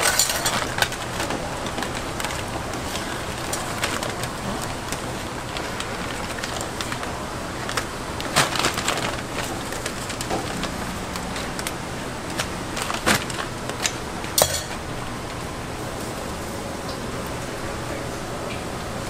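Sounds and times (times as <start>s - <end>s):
plastic bag crinkling: 0.0s - 14.9s.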